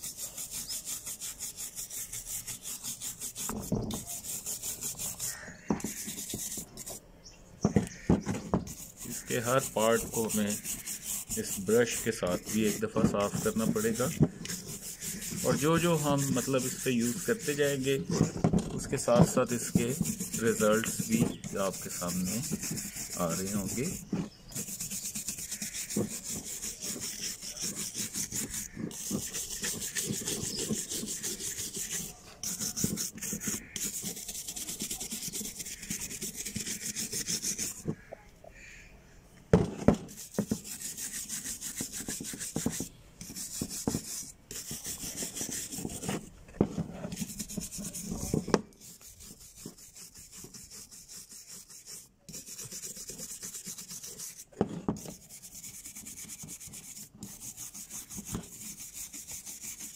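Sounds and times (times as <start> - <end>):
wire brush scrubbing metal: 0.0 - 7.0, 7.9 - 38.1, 40.1 - 46.3, 47.1 - 59.9
sharp knocks: 7.6 - 8.8, 39.5 - 40.6.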